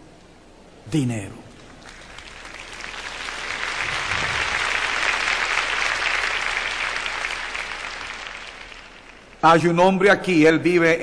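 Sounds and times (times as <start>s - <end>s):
crowd applauding: 1.6s - 9.6s.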